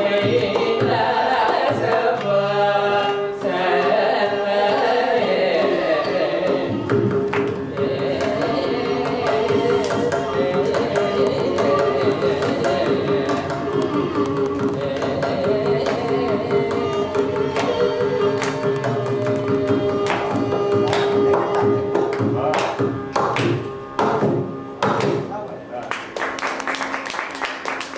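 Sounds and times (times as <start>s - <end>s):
group vocal singing: 0.0s - 22.9s
violin accompaniment: 0.0s - 25.9s
held drone note: 7.7s - 22.6s.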